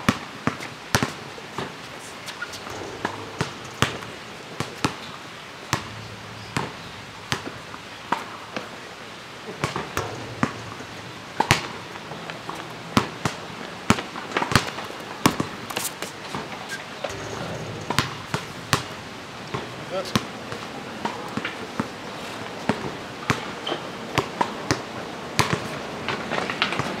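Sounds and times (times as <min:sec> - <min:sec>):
basketball bouncing on asphalt: 0:00.1 - 0:01.8, 0:02.4 - 0:05.1, 0:05.7 - 0:08.7, 0:09.5 - 0:15.9, 0:22.7 - 0:23.5, 0:24.2 - 0:25.7.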